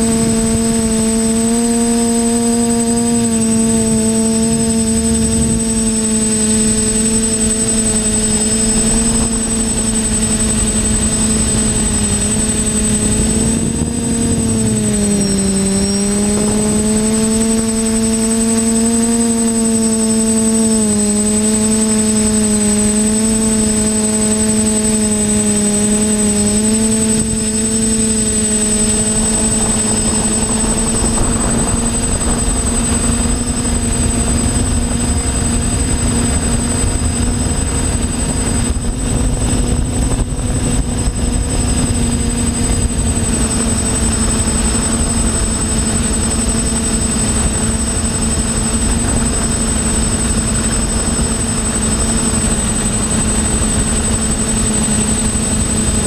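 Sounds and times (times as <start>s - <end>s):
drone propellers buzzing: 0.0s - 56.0s
thin high whine: 0.0s - 56.0s
wind rush: 7.3s - 18.8s, 24.8s - 43.6s.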